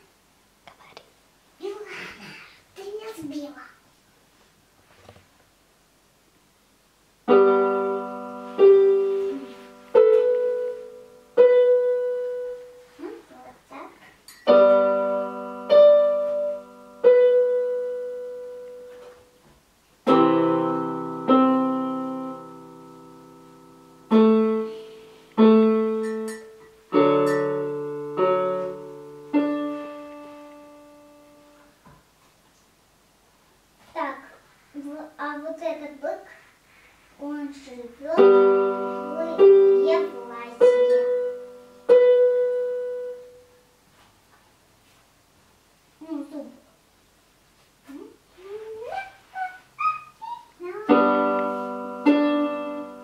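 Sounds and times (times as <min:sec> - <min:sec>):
slow piano chords: 0:07.3 - 0:13.1, 0:14.4 - 0:19.4, 0:20.0 - 0:31.8, 0:38.1 - 0:43.6, 0:50.7 - 0:53.0.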